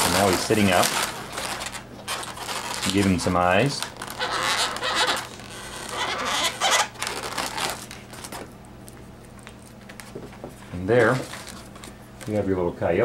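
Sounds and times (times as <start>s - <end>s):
hands rustling on balloon: 0.0s - 7.9s
marker squeaking on balloon: 4.0s - 7.6s.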